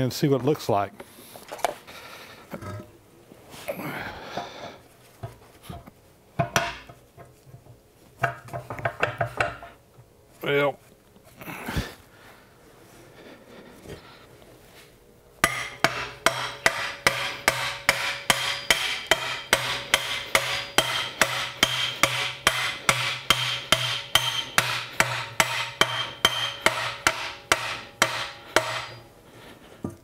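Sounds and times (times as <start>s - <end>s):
hammer striking steel: 15.4s - 29.0s.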